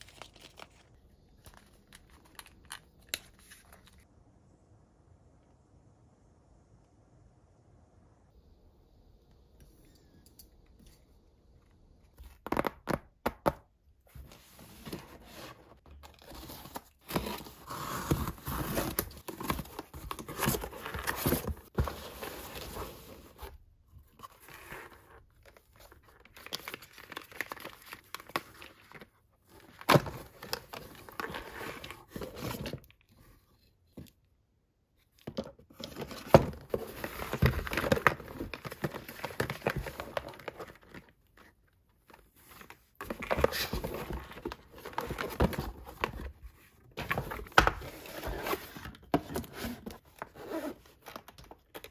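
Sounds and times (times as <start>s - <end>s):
cardboard packaging rustling: 14.1s - 33.3s, 35.7s - 51.9s.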